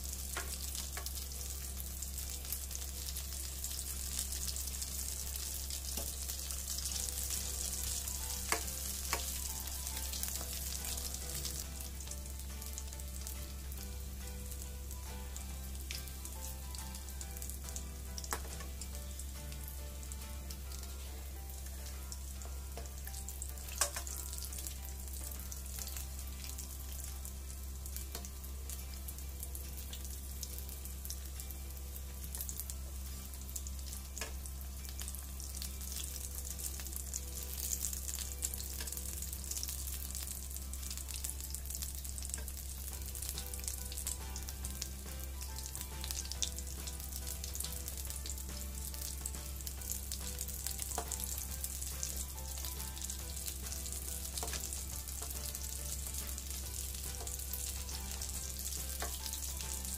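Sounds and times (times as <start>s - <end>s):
food sizzling in hot oil: 0.0s - 59.9s.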